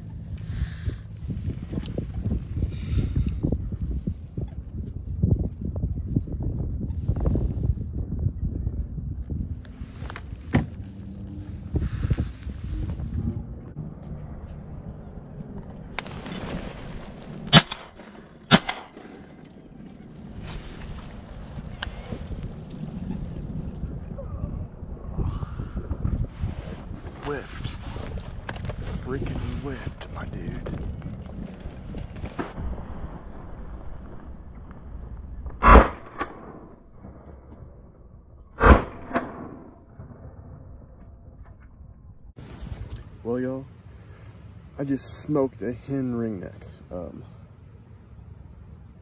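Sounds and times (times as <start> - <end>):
low wind noise: 0.0 - 49.0
shotgun firing: 17.5 - 19.3, 35.6 - 36.7, 38.6 - 39.7
gunshot echo: 17.5 - 19.4, 35.5 - 37.3, 38.6 - 40.3.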